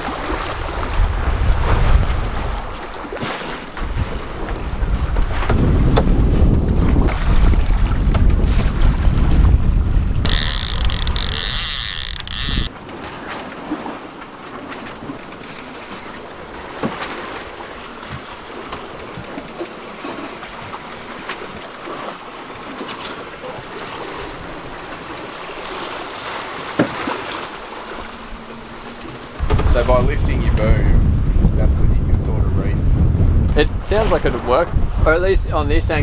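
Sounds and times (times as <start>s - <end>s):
wind buffeting microphone: 0.0s - 2.8s, 3.8s - 12.8s, 28.3s - 36.0s
water rushing along hull: 0.0s - 36.0s.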